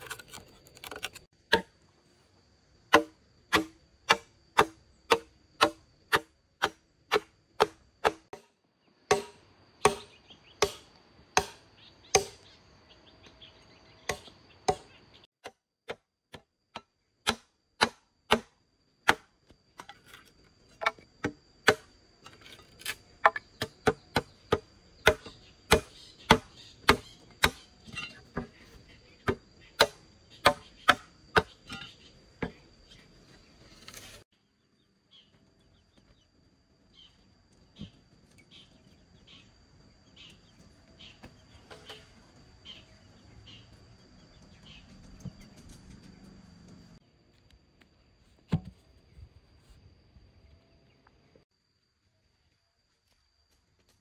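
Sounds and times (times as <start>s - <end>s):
chopping blows on wood: 2.9s - 8.5s, 9.1s - 10.8s, 17.2s - 19.3s, 23.3s - 27.7s.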